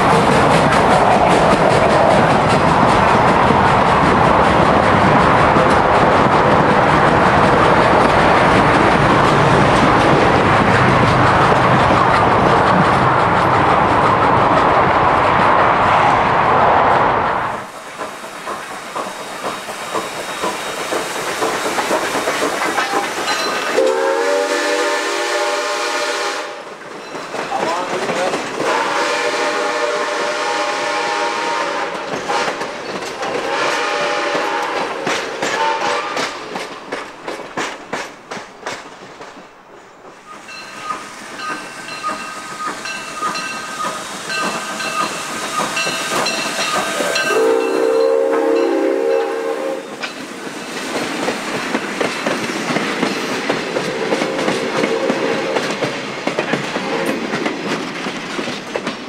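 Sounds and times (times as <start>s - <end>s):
wheels clicking over rail joints: 0.0s - 14.8s, 17.6s - 23.8s, 26.8s - 28.8s, 31.9s - 33.5s, 34.3s - 48.0s, 49.9s - 59.0s
steam whistle blowing: 23.7s - 26.6s, 28.7s - 32.5s, 33.4s - 34.9s, 35.6s - 36.2s, 46.7s - 49.9s, 54.3s - 55.7s
bell ringing: 40.5s - 45.2s.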